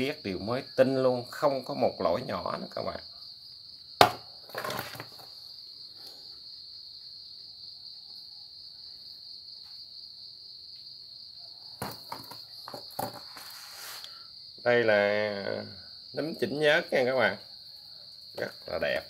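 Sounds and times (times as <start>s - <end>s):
chainsaw handling on cardboard: 4.0s - 5.3s, 11.8s - 14.0s.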